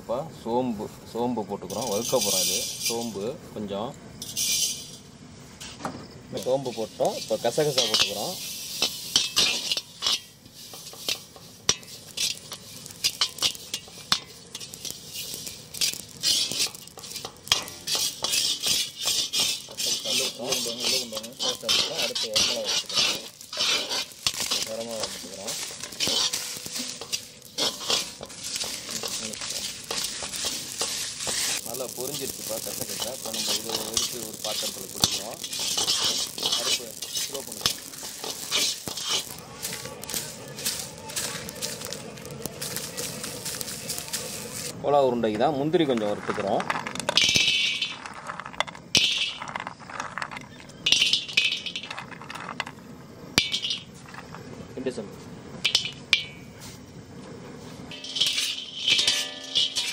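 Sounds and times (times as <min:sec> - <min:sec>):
seeds roasting: 0:00.0 - 0:59.9
metal ladle scraping a wok: 0:01.6 - 0:03.2, 0:04.2 - 0:05.8, 0:06.4 - 0:44.7, 0:45.4 - 0:52.8, 0:53.4 - 0:54.5, 0:55.6 - 0:56.8, 0:57.6 - 0:59.9
metal clinking on pan: 0:07.0 - 0:39.4, 0:50.7 - 0:52.0, 0:53.4 - 0:53.9, 0:55.6 - 0:56.5, 0:57.9 - 0:59.9.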